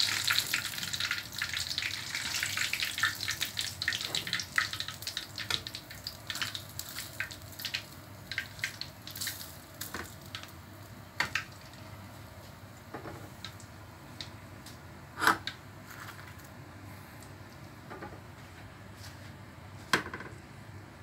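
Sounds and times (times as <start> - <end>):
oil sizzling in a frying pan: 0.0 - 14.3.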